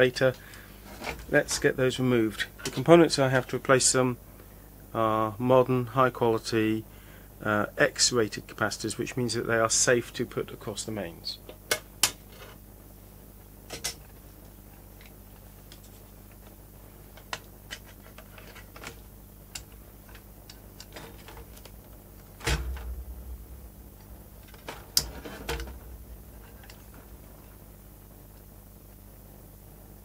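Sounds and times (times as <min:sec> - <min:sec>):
loud knock: 0:22.4 - 0:27.3
short low rumble: 0:22.4 - 0:27.9.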